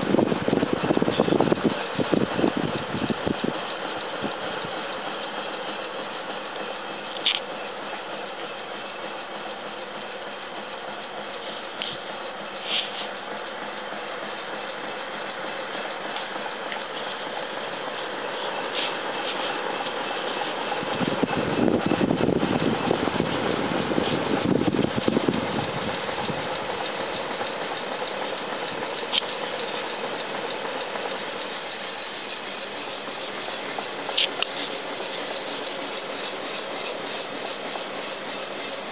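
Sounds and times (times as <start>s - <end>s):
hot-air fan whirring: 0.0s - 38.9s
brief clicks: 7.2s - 7.5s.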